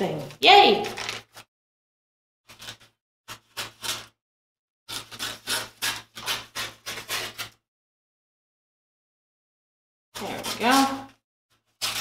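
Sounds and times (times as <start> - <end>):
scissors snipping paper: 2.5 - 4.2, 4.9 - 7.6, 10.2 - 11.2, 11.8 - 12.0.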